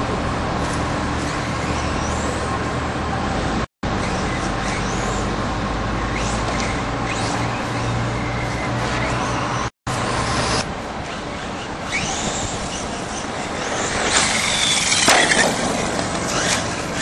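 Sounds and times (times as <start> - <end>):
tyres on dirt: 0.0 - 17.0
toy truck motor whine: 11.5 - 17.0
crash and clatter of truck: 13.7 - 17.0.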